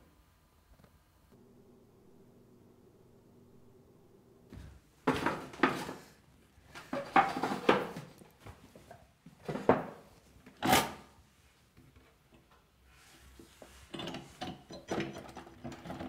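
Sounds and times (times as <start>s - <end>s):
chair knocks and scrapes: 6.8s - 8.2s.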